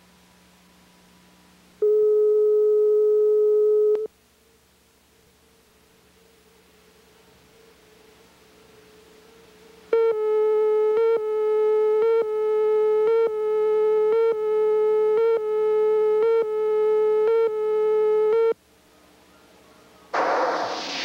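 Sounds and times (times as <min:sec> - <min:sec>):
burst of hiss: 0:20.2 - 0:21.0.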